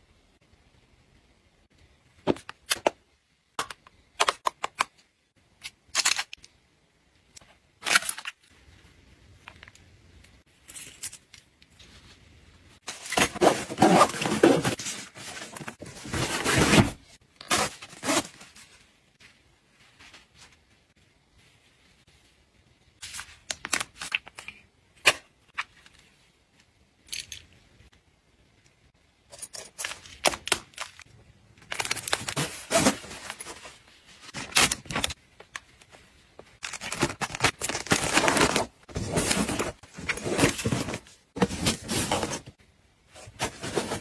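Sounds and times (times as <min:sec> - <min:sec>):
fabric pouch rustling and scraping: 0:12.8 - 0:22.1, 0:32.3 - 0:35.1, 0:37.0 - 0:42.6, 0:43.2 - 0:44.0.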